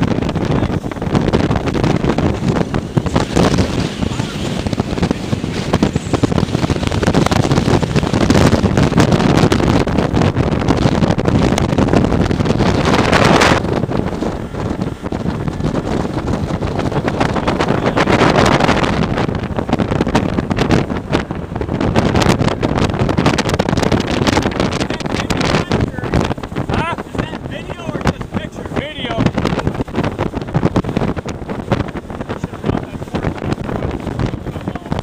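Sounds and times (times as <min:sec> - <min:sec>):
water splashing: 0:00.0 - 0:09.0
outboard motor: 0:00.0 - 0:35.0
wind rushing over microphone: 0:00.0 - 0:35.0.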